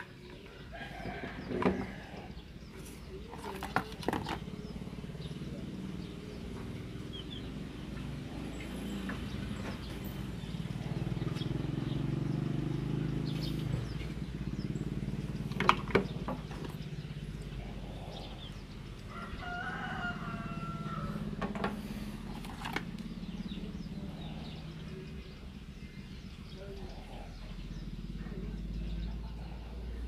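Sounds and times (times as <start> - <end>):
steady low drone: 16.2 - 30.0.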